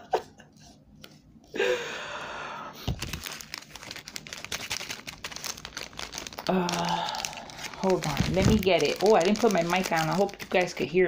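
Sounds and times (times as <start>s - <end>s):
breathy sigh: 1.6s - 2.9s, 6.5s - 7.6s
plastic packaging crinkling: 2.8s - 11.0s.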